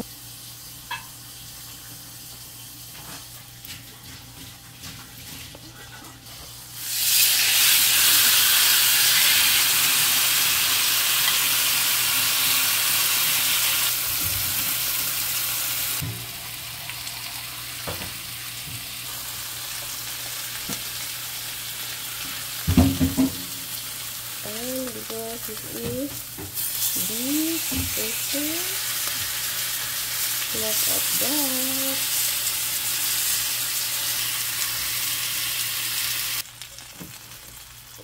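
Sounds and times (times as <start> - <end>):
chicken sizzling on grill pan: 6.7 - 38.0
utensil knocking against pan: 22.7 - 23.5.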